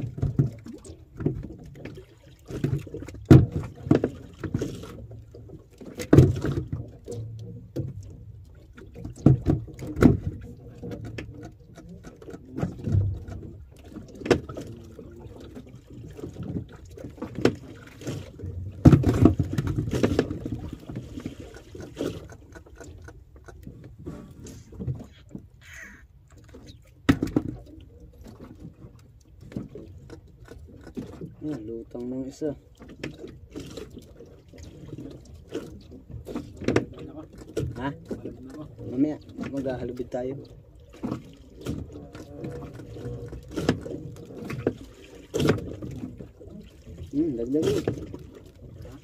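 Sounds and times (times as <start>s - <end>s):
knocks against boat hull: 3.2s - 4.0s, 9.1s - 11.2s, 18.8s - 20.4s, 27.0s - 27.6s.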